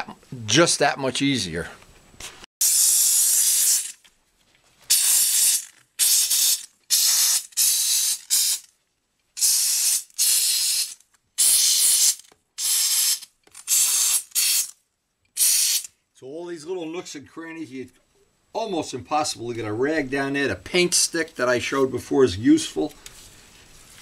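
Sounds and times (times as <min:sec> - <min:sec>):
steam cleaner hissing blasts: 0:02.6 - 0:03.9, 0:04.9 - 0:08.6.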